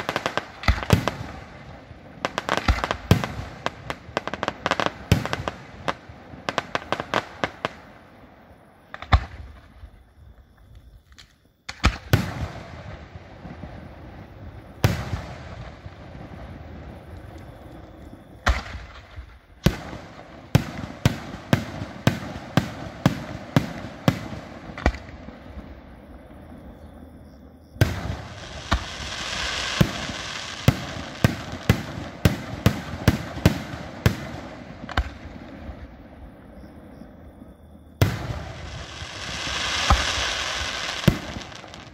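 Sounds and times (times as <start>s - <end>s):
hissing crackle: 13.0s - 26.0s, 27.8s - 35.9s, 38.0s - 41.9s
firework shells bursting: 38.0s - 41.9s.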